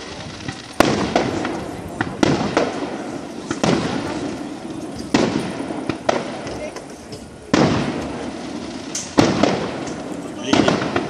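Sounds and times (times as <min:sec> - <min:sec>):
firework shells bursting: 0:00.0 - 0:11.0.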